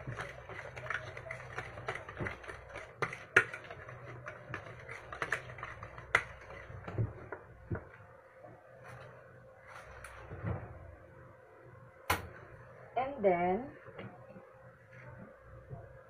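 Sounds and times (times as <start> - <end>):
utensil tapping a mixing bowl: 0.0 - 8.0.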